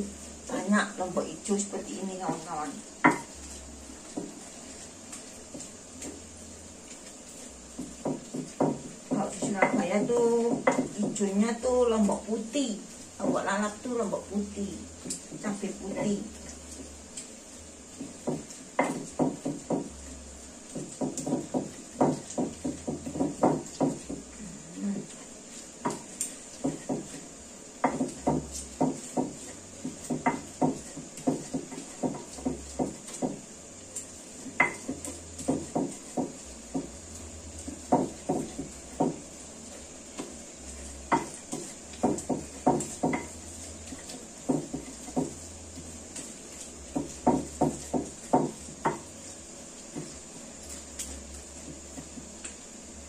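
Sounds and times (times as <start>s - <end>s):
pestle knocking in a mortar: 2.2s - 3.4s, 4.0s - 4.5s, 7.7s - 11.3s, 17.9s - 24.3s, 25.8s - 33.5s, 34.4s - 37.0s, 37.6s - 39.4s, 41.0s - 49.2s.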